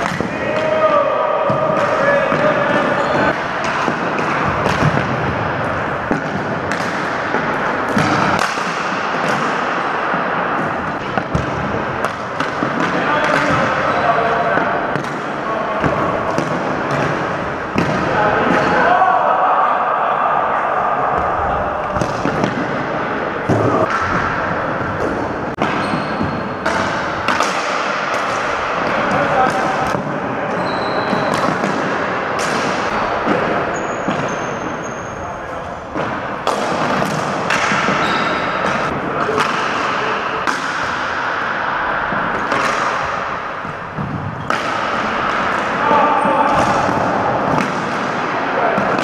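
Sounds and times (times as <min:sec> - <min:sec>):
hockey sticks clacking: 0:00.0 - 0:18.9, 0:21.9 - 0:35.2, 0:35.9 - 0:49.0
echoing hall din: 0:00.0 - 0:49.0.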